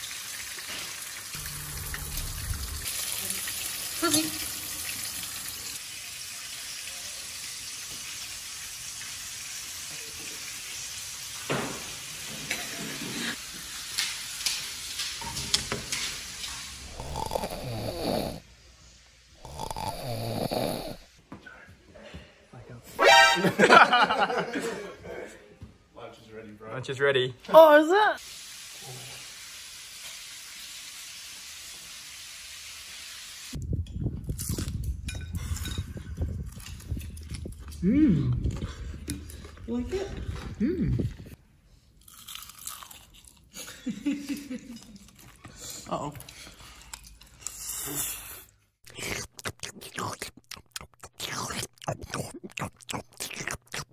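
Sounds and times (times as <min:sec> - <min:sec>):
food sizzling in hot oil: 0:00.0 - 0:18.4, 0:28.2 - 0:33.6
crunching and chewing food: 0:16.8 - 0:18.1, 0:19.4 - 0:21.0, 0:34.2 - 0:41.2, 0:42.0 - 0:43.6, 0:44.8 - 0:53.9.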